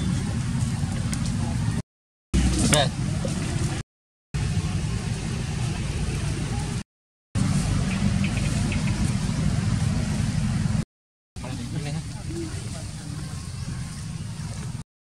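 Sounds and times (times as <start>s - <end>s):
low rumbling noise: 2.4s - 3.8s, 4.4s - 6.8s, 7.4s - 10.8s.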